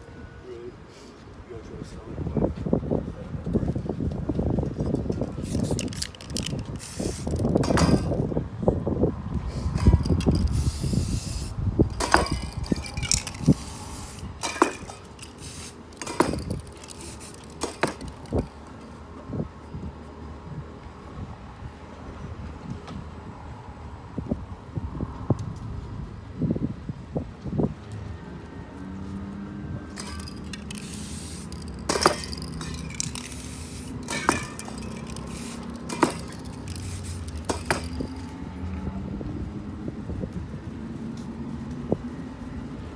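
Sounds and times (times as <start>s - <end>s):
spray paint can hissing: 5.3s - 7.8s, 9.8s - 18.5s, 30.0s - 38.3s
sharp metal clinks: 11.9s - 13.8s, 30.0s - 38.2s
sharp clicks and knocks: 14.4s - 18.5s, 30.0s - 38.3s.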